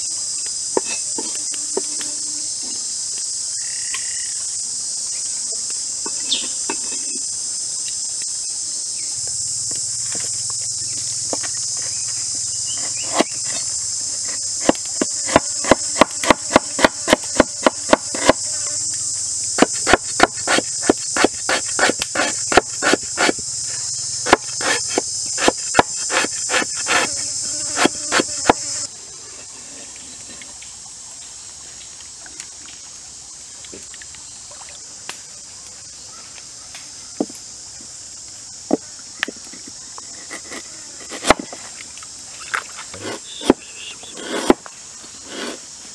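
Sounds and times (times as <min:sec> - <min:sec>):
high-pitched insect drone: 0:00.0 - 0:29.0, 0:38.1 - 0:45.9
knife chopping on wooden board: 0:12.8 - 0:13.3, 0:14.6 - 0:18.4, 0:19.6 - 0:23.4, 0:24.2 - 0:27.1.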